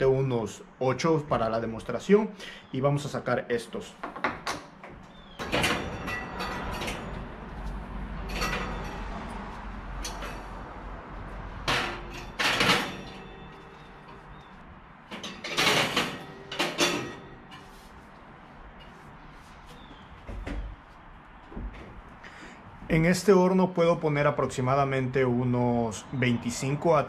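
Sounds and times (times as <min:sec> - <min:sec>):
oven glass door and rack rattling: 0:04.2 - 0:17.9
metal lures clinking on wire rack: 0:08.2 - 0:09.4, 0:15.1 - 0:17.7.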